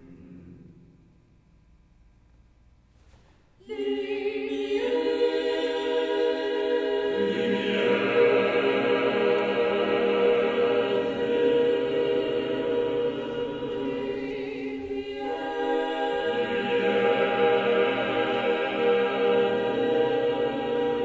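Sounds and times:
choir singing sustained chords: 0.0 - 1.1, 3.6 - 21.0.

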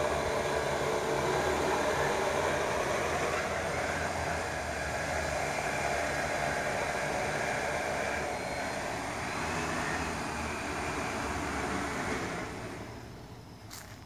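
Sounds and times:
drone propellers whirring: 0.0 - 13.6.

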